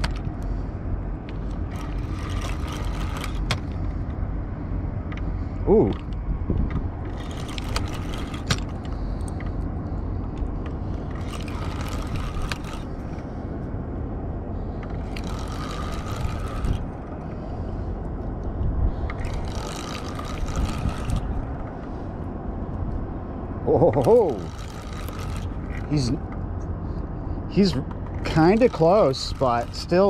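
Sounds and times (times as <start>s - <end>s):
low rumble: 0.0s - 28.4s
fishing reel whirring: 1.2s - 4.1s, 7.0s - 9.6s, 10.5s - 13.5s, 14.8s - 18.0s, 18.9s - 22.2s, 23.8s - 26.2s, 27.6s - 30.0s.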